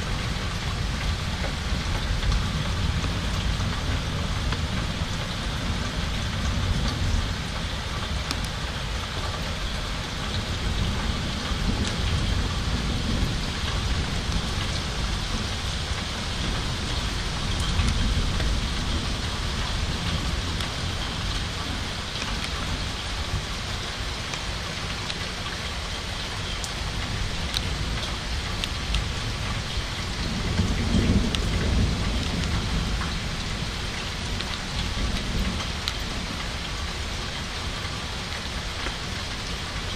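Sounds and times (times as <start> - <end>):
thunder rumbling: 0.0 - 23.5, 28.8 - 37.2
steady rain falling: 0.0 - 39.9.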